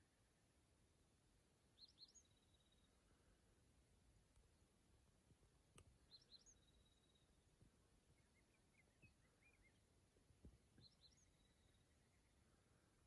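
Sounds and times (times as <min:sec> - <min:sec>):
bird chirps: 0:01.8 - 0:02.9, 0:06.0 - 0:07.4, 0:08.1 - 0:09.9, 0:10.8 - 0:12.6
bird calls: 0:08.1 - 0:09.9.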